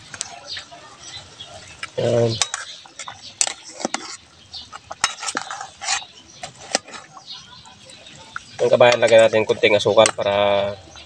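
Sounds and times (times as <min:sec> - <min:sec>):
metal ladle clinking in pot: 0:02.4 - 0:04.1.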